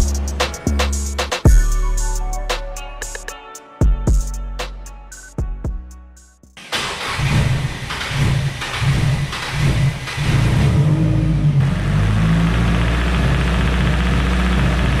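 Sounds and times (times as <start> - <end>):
car engine idling: 6.6 - 15.0.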